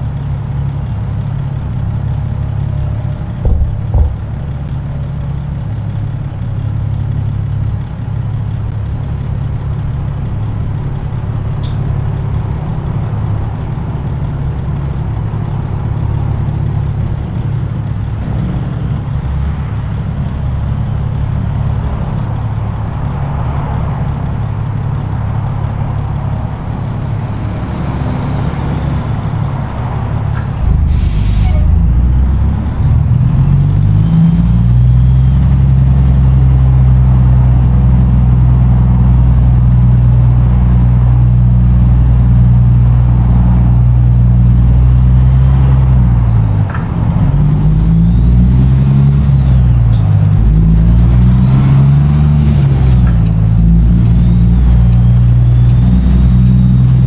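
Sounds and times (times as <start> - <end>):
truck diesel engine drone: 0.0 - 57.0
brief thumps: 3.4 - 4.7.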